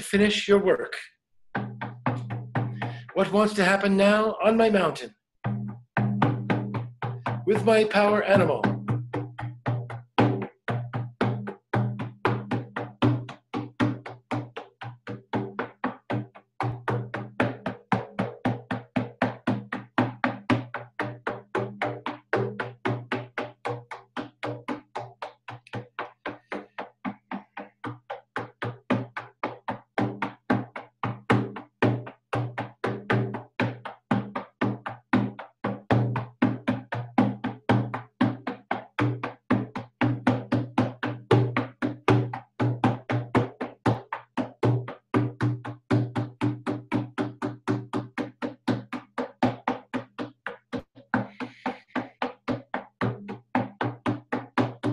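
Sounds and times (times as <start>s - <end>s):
frame drum beating: 1.5s - 54.9s.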